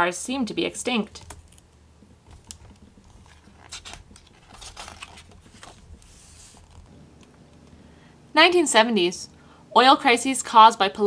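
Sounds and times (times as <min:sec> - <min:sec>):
paper page turning: 0:02.3 - 0:06.9.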